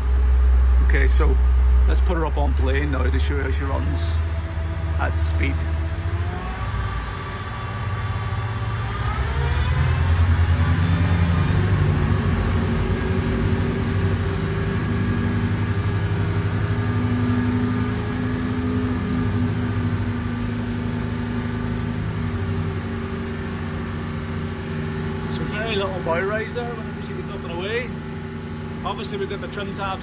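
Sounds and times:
boat diesel engines running hard: 0.0 - 30.0.

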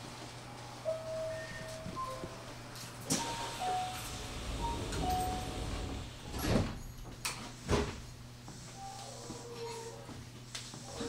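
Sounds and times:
train car hum: 0.0 - 8.5.

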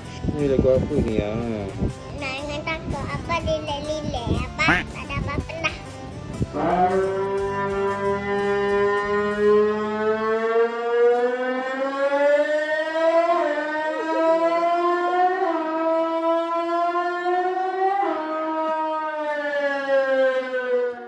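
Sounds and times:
siren wailing: 6.6 - 21.0.

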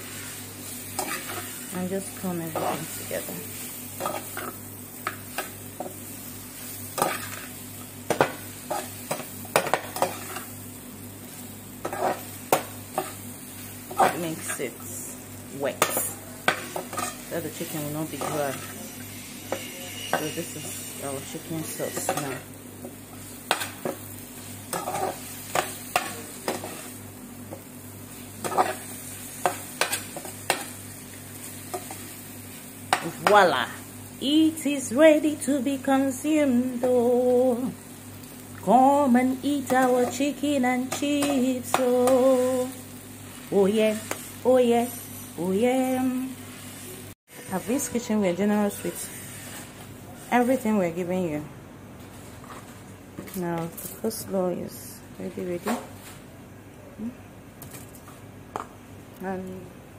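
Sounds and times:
spatula scraping a pan: 0.0 - 1.7, 6.6 - 7.5, 8.1 - 10.5, 11.8 - 13.2, 15.8 - 22.5, 24.7 - 27.0, 28.4 - 30.8, 46.5 - 50.6
food sizzling in a frying pan: 0.0 - 51.2.

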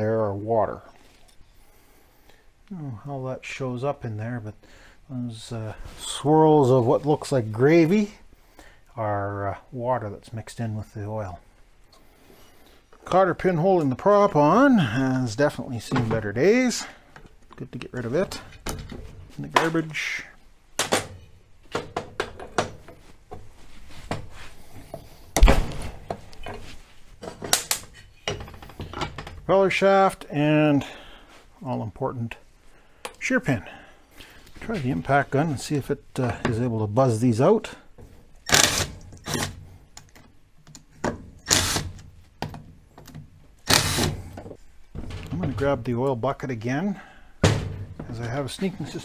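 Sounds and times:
heavy thump: 25.4 - 26.2, 47.4 - 48.2.

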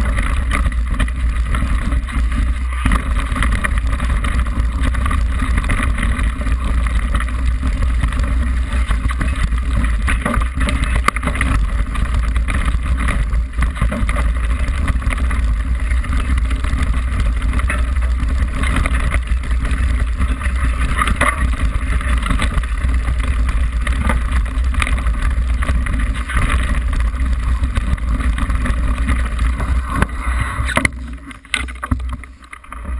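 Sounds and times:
bike knocks and rattles: 0.0 - 32.9
tyre rumble: 0.0 - 32.9
wind noise: 0.0 - 32.9.

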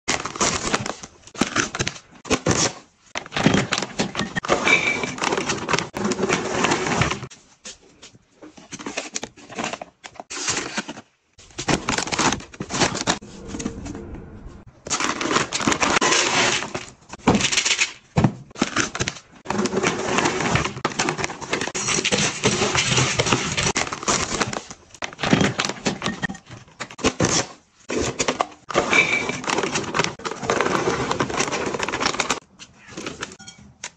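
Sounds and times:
plastic packaging rustling and crinkling: 5.0 - 13.2.

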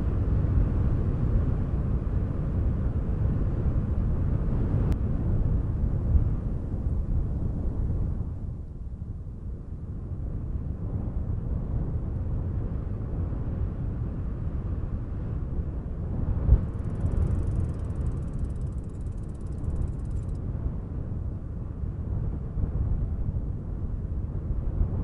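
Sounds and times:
wind on microphone: 0.0 - 25.0.

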